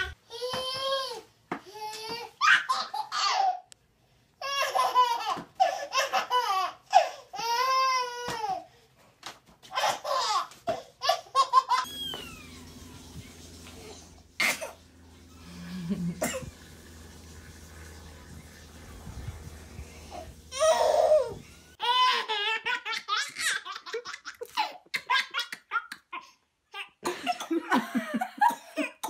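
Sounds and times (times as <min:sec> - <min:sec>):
baby laughing: 0:01.8 - 0:03.7, 0:04.4 - 0:08.6, 0:09.7 - 0:12.2, 0:20.5 - 0:27.8
low steady hum: 0:11.7 - 0:22.4.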